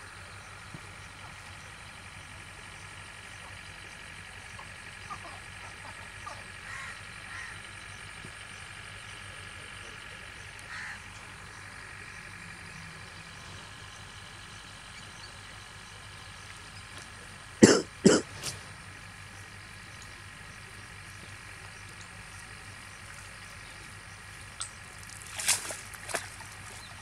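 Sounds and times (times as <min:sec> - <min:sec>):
steady background hum: 0:00.0 - 0:27.0
loud water splashes: 0:25.0 - 0:26.9.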